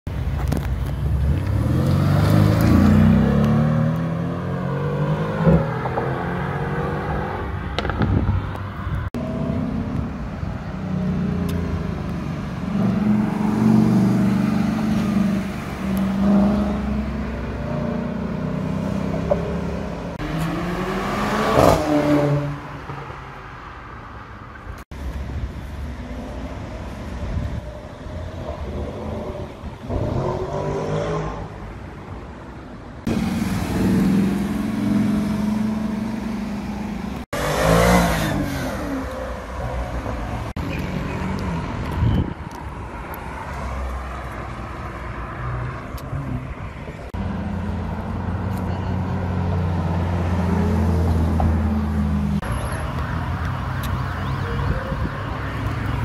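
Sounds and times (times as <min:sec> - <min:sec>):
cars driving by: 0:00.1 - 0:56.0
passing traffic: 0:00.1 - 0:56.0.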